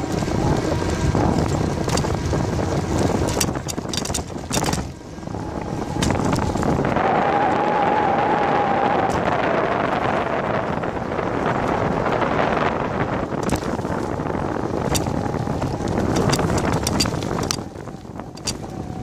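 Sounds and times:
bicycle rolling on pavement: 0.0s - 19.0s
wind buffeting microphone: 0.0s - 19.0s
rattling clicks: 1.8s - 2.2s, 3.0s - 5.0s, 14.8s - 17.7s, 18.3s - 18.7s.

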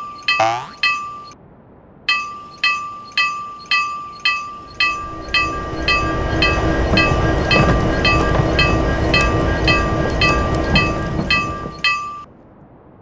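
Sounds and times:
railroad crossing bell ringing: 0.0s - 1.4s, 2.1s - 12.3s
train rumbling: 2.1s - 12.3s.

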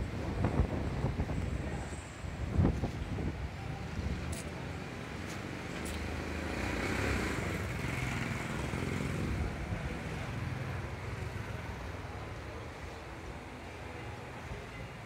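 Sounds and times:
street traffic: 0.0s - 15.0s
motor vehicle passing by: 6.0s - 9.5s.

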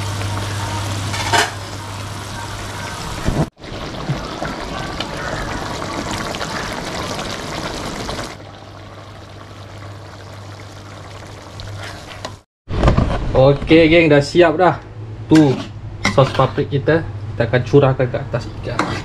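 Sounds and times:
food frying with crackling sizzle: 0.0s - 12.5s.

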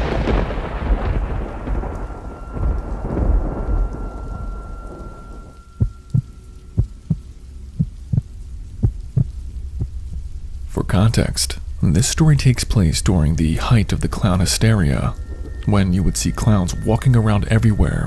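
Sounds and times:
thunder crash: 0.0s - 7.2s
rain: 0.0s - 18.0s
heartbeat thumping: 5.8s - 10.2s.

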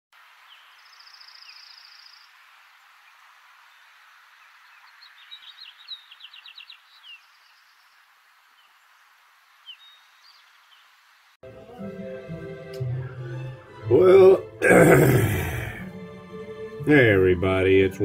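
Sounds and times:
songbirds singing: 0.2s - 11.4s
steady hiss: 0.2s - 11.4s.

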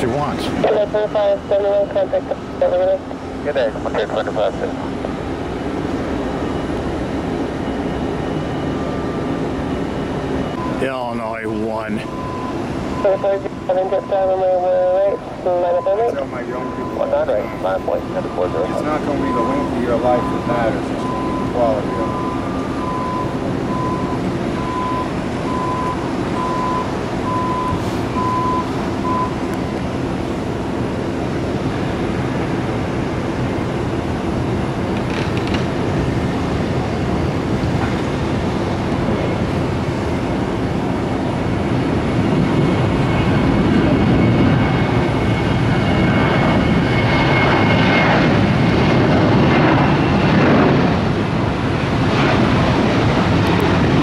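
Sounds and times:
jet engines spooling up: 15.2s - 54.0s.

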